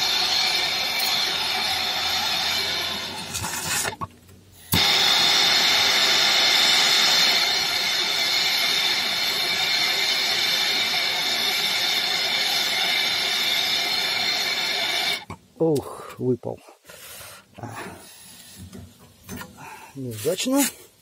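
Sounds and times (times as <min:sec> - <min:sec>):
gas torch flame hissing: 0:00.0 - 0:15.3.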